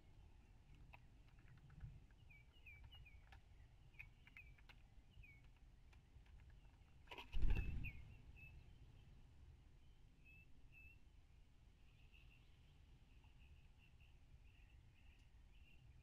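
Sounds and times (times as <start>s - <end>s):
bird beak clicking and tapping: 0.7s - 7.6s
faint bird chirps: 2.1s - 5.6s, 6.5s - 16.0s.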